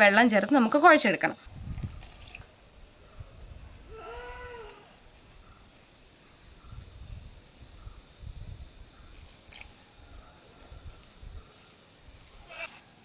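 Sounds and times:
short animal cry: 3.9s - 4.9s, 12.5s - 12.8s.

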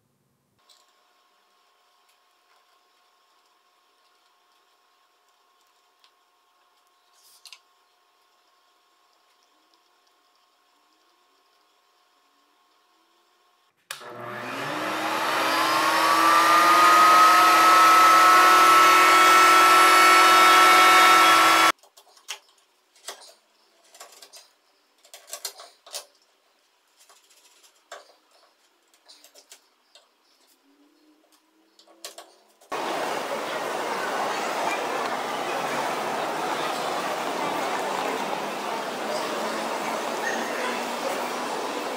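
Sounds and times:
power tool motor whine: 14.0s - 21.7s.

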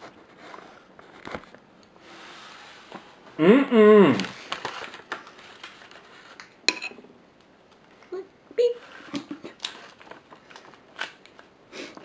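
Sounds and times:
loud voiced sound: 3.4s - 4.3s
spoon clicking and scraping: 6.7s - 7.0s.

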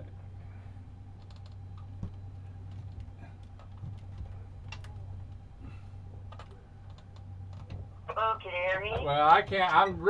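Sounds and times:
electric boat motor humming: 0.0s - 10.0s
light clicks and ticks: 1.2s - 5.4s, 6.3s - 7.8s.

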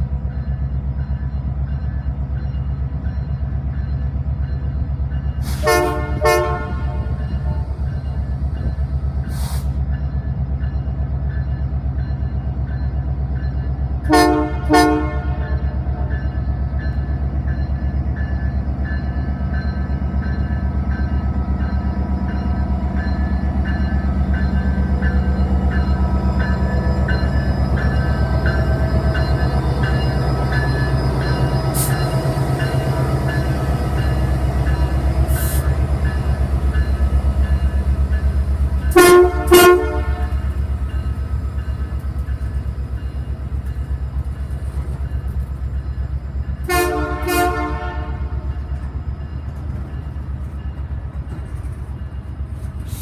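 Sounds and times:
locomotive bell ringing: 0.0s - 52.9s
diesel locomotive drone: 0.0s - 53.0s
train horn toots: 5.6s - 7.8s, 14.0s - 16.1s, 38.9s - 40.5s, 46.6s - 48.5s.

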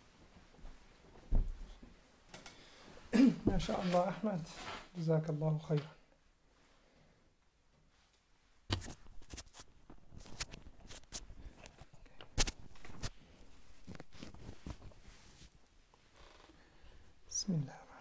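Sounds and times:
cloth rustling: 7.9s - 16.8s.

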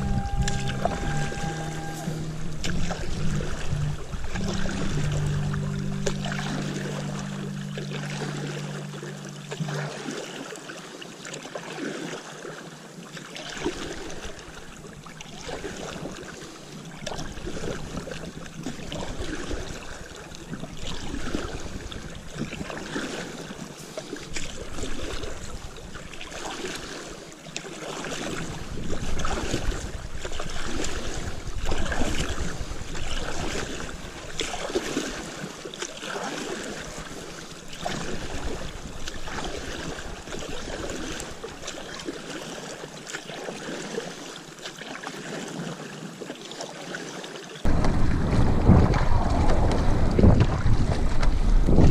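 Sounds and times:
wind rumble on microphone: 0.0s - 9.7s, 14.0s - 23.6s, 24.3s - 26.4s, 28.2s - 35.5s, 36.8s - 41.7s, 47.7s - 51.9s
paddle splashing in water: 0.0s - 51.9s
water running along board: 0.0s - 51.9s.

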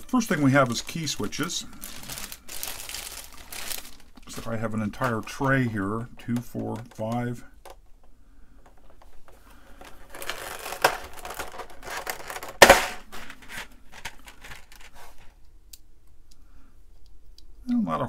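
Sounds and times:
plastic cover crinkling: 0.0s - 7.3s, 9.7s - 15.3s.

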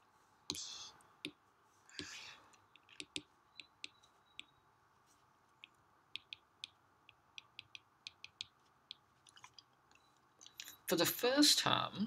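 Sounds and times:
faint room hiss: 0.0s - 12.0s
stylus tapping on glass screen: 2.8s - 4.6s, 5.6s - 9.1s.

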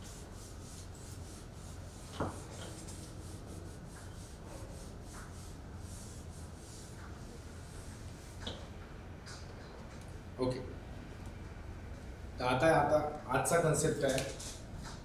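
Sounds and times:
eraser rubbing on whiteboard: 0.0s - 8.4s.

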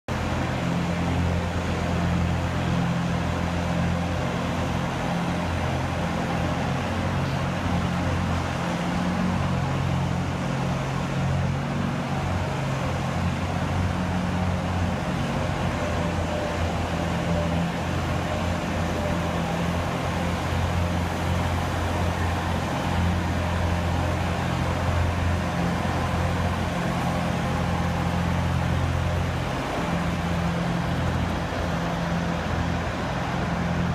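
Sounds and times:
machine engine humming: 0.1s - 33.9s.

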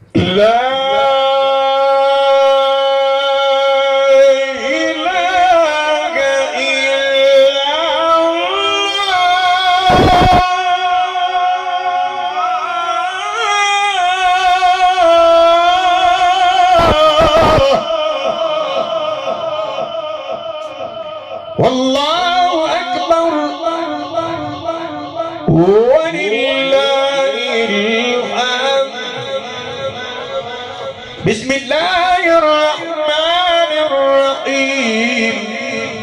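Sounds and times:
man reciting melodically over pa: 0.0s - 36.0s
bursts of noise: 9.8s - 10.5s, 16.7s - 21.8s.

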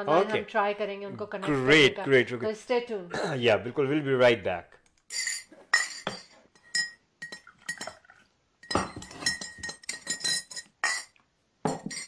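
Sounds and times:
spoon clinking against teacup: 5.1s - 8.0s, 8.6s - 12.0s.

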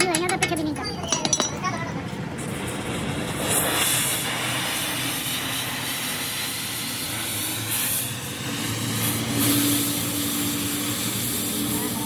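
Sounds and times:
cutting torch hissing: 2.4s - 12.0s.

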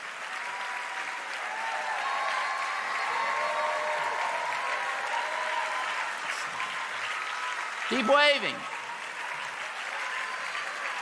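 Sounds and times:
crowd applauding: 0.0s - 11.0s.

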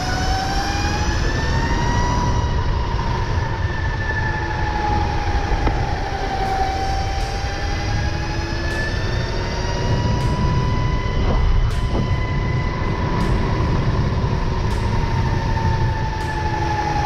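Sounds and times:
electric motor whine: 0.0s - 17.0s
wind rumble on microphone: 0.0s - 17.0s.

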